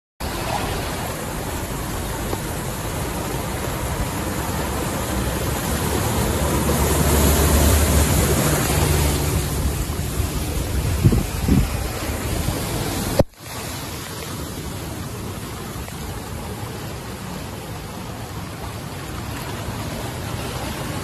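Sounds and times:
heavy rain: 0.2 - 21.0
running water: 0.2 - 21.0
water splashing from tyres: 0.2 - 21.0
car engine rumble: 1.1 - 13.2.

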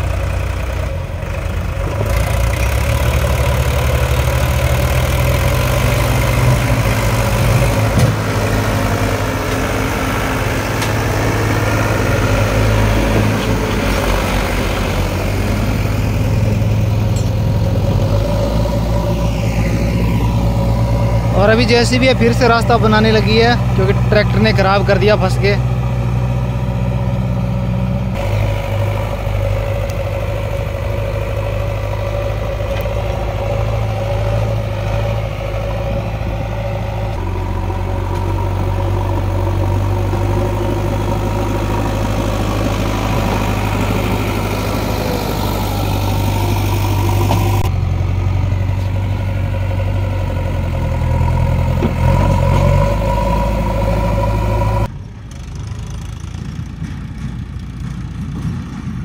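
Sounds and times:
backhoe diesel engine running: 0.0 - 59.0.

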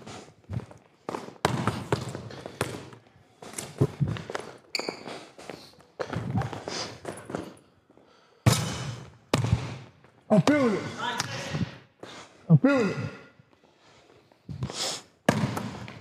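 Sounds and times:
basketball bouncing in hall: 0.0 - 5.2, 6.0 - 7.6, 8.4 - 11.9, 14.5 - 16.0
high shoe squeak: 4.7 - 7.5.

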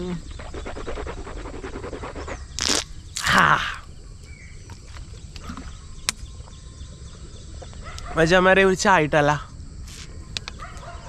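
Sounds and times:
man gargling water: 0.0 - 0.9, 2.6 - 4.0
man spitting: 2.2 - 4.0.

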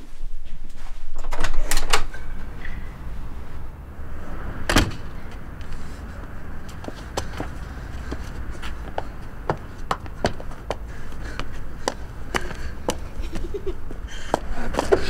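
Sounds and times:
low steady rumble: 2.1 - 15.0
hurried footsteps on paving: 5.3 - 15.0.

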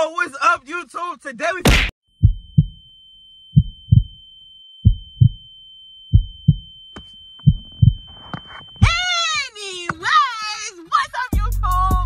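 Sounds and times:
heartbeat thumps: 1.8 - 2.9, 3.5 - 4.2, 4.8 - 5.5, 6.1 - 9.0
steady high-pitched tone: 2.1 - 11.0
woman speaking: 8.8 - 12.0.

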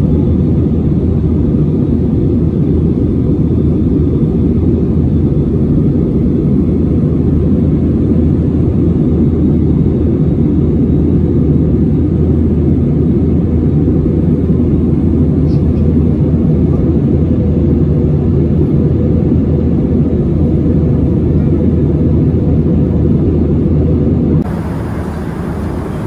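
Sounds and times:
jet engine cabin drone: 0.0 - 26.0.

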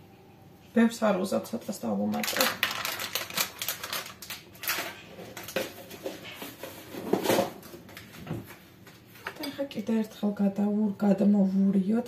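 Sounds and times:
spice packet crinkling: 2.1 - 5.6
kitchen items clattering: 2.1 - 9.7.

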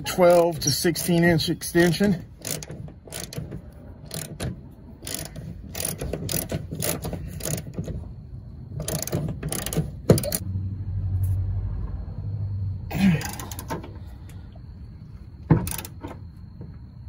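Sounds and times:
socket ratchet clicking: 2.4 - 7.9, 8.8 - 10.4, 15.6 - 16.0.

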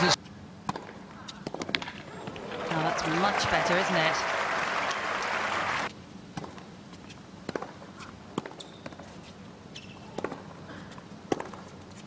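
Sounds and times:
tennis ball struck by rackets: 0.6 - 2.5.

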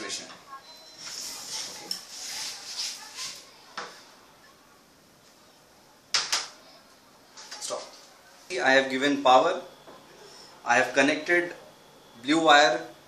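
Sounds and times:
rustling and scraping: 1.0 - 3.5.

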